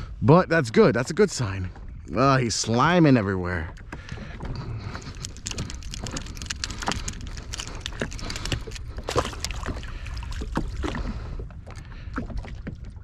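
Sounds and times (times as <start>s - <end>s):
water lapping against hull: 0.0s - 13.0s
small irregular knocks and clicks: 3.7s - 9.8s.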